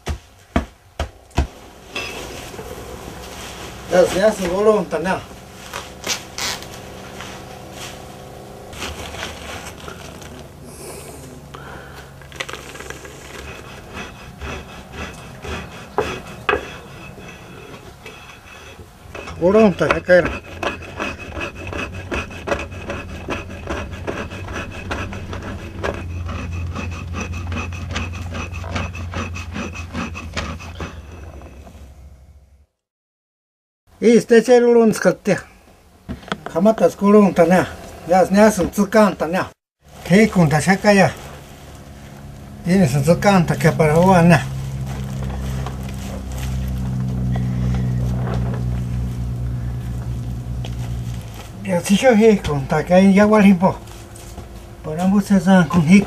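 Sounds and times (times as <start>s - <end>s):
stone grinding on stone: 12.5s - 31.6s.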